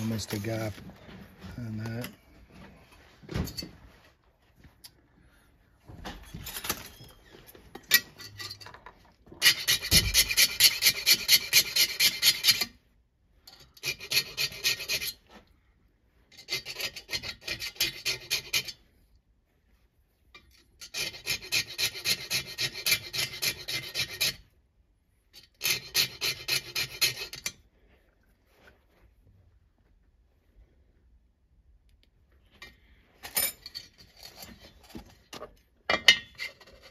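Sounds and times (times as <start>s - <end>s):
light scraping: 0.0s - 4.4s
file rasping on metal: 9.4s - 12.8s, 13.5s - 15.3s, 16.3s - 18.8s, 20.8s - 24.5s, 25.4s - 27.6s.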